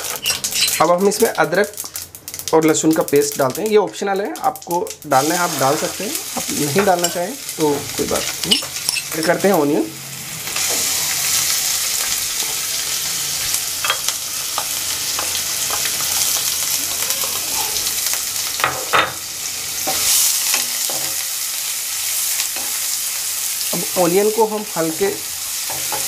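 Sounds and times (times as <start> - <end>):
onions sizzling in hot oil: 0.0 - 26.0
spatula knocking and scraping pan: 25.7 - 26.0.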